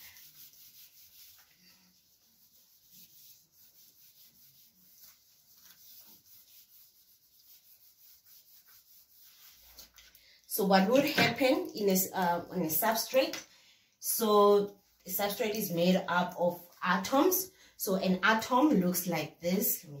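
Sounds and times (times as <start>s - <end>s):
eraser rubbing on whiteboard: 0.0s - 10.1s.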